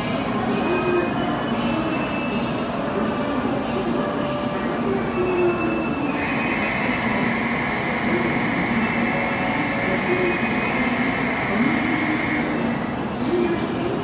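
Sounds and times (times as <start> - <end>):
high-pitched electronic ringing: 6.2 - 12.8.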